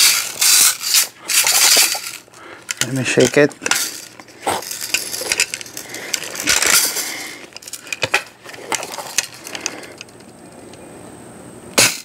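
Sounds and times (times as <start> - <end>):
bbs rattling inside gun: 0.0 - 10.4.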